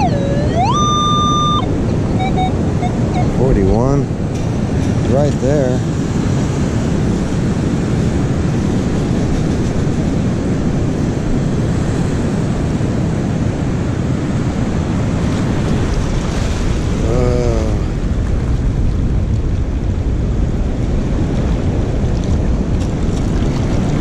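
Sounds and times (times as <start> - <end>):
warbling tone: 0.0 - 3.6
ocean surf rushing: 0.0 - 24.0
wind buffeting microphone: 0.0 - 24.0.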